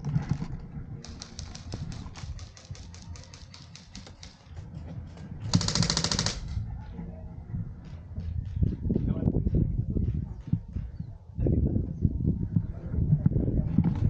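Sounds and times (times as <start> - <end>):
airsoft guns firing full-auto: 1.0 - 4.4, 5.5 - 6.6.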